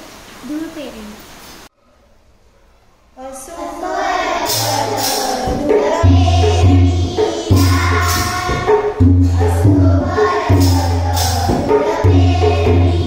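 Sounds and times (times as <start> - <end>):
children singing together: 3.2 - 13.0
hand drum strokes: 4.0 - 13.0.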